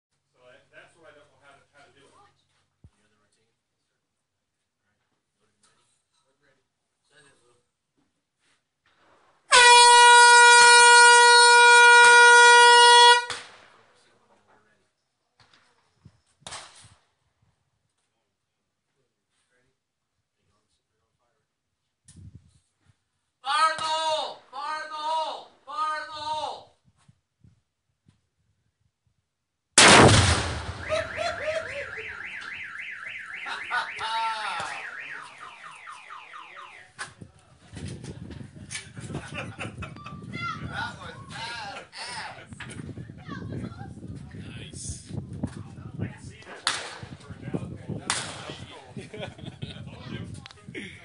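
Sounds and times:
horn blast: 9.5 - 13.3
explosive target blast: 29.8 - 32.4
car alarm: 30.8 - 37.0.

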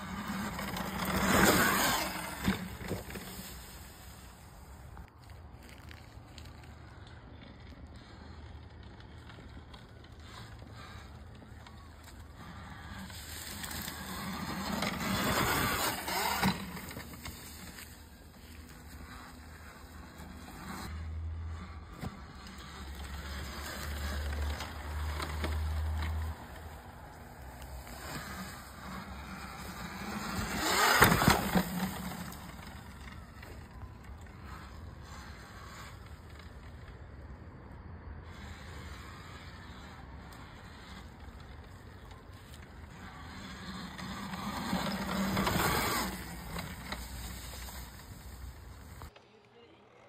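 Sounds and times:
electric dirt bike passing: 0.0 - 50.0.

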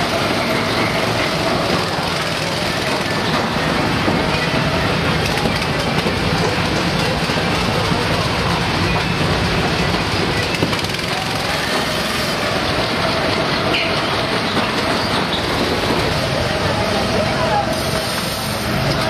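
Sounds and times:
go-karts racing: 0.0 - 19.0.

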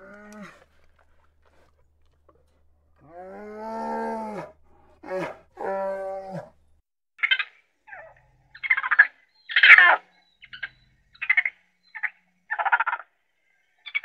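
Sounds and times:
bear calling: 7.2 - 13.0.

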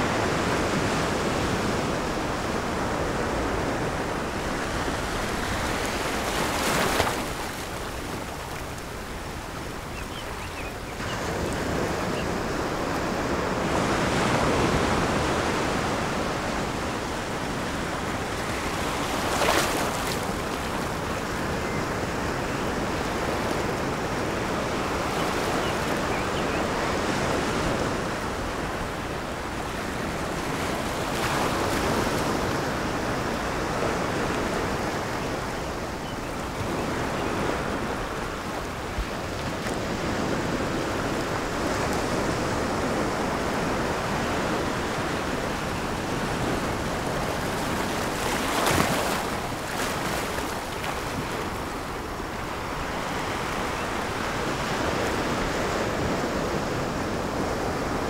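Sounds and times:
small waves breaking: 0.0 - 9.7, 36.5 - 58.0.

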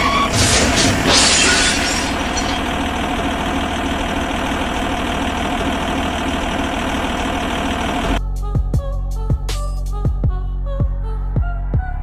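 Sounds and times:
tractor engine idling: 0.0 - 8.2.

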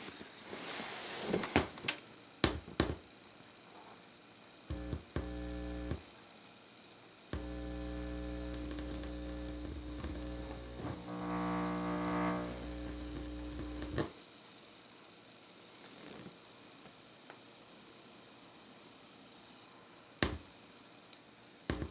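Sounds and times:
speakers humming and buzzing: 4.7 - 6.1, 7.3 - 14.1.

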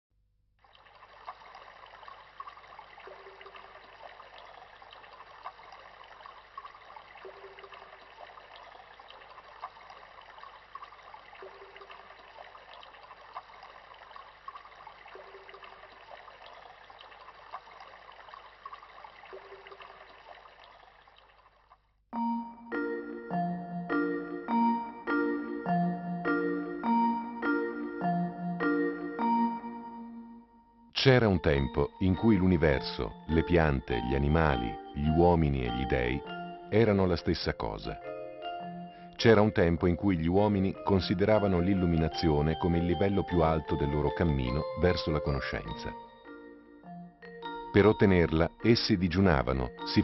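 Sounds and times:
trickling running water: 0.6 - 22.0, 31.2 - 37.9, 39.2 - 46.0.

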